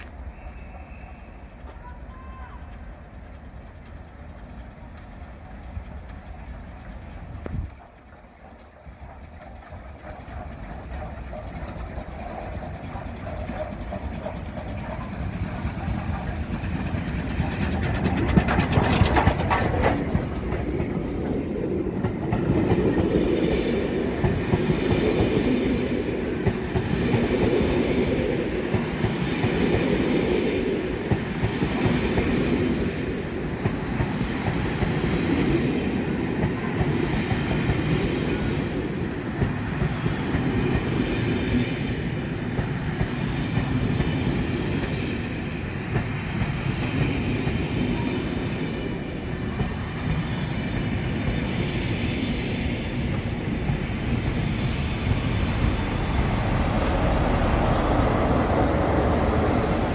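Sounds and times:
steam locomotive passing: 0.0s - 59.9s
train coaches rumbling past: 0.0s - 59.9s.

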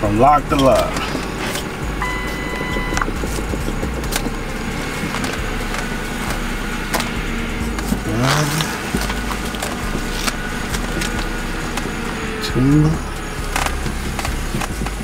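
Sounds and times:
car engine idling: 0.0s - 15.0s
power steering pump whine: 0.0s - 15.0s
steering wheel clicks: 0.0s - 15.0s.

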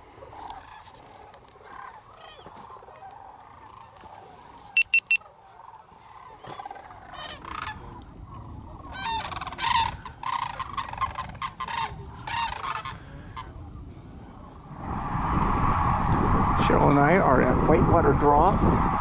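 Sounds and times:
cranes calling: 0.0s - 13.8s
short high beeps: 4.8s - 5.2s.

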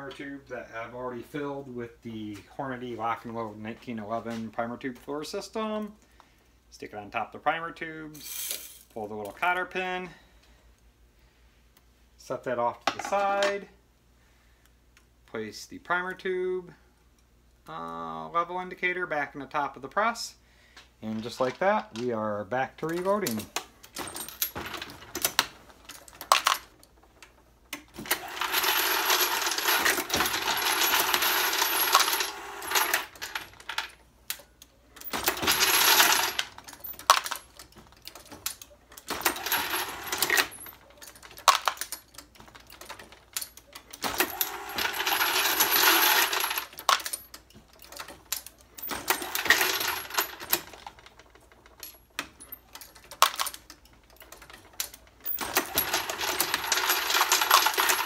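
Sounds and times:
brass cases rattling in hopper: 23.0s - 34.0s, 35.0s - 58.0s.

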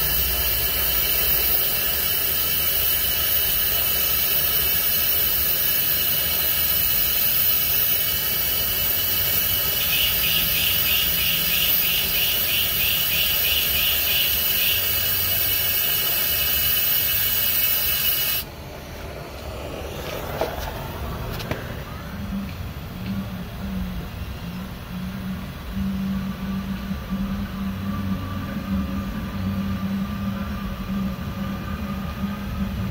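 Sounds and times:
gas torch flame hissing: 0.0s - 22.0s.

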